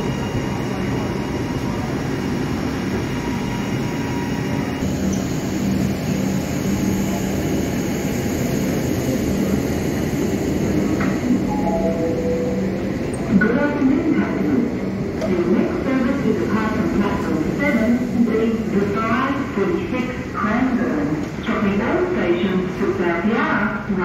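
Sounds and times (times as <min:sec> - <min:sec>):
electric trains humming: 0:00.0 - 0:24.0
high steady tone: 0:11.4 - 0:13.3.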